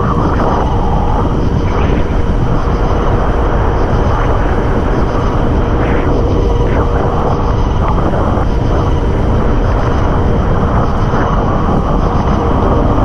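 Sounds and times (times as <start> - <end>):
breaking surf rushing: 0.0 - 13.0
wind roaring over microphone: 0.0 - 13.0.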